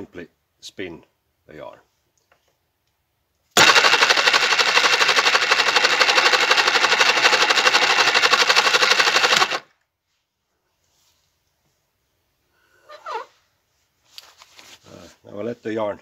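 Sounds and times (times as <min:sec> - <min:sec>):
rope-making machine rattling: 0:03.6 - 0:09.6.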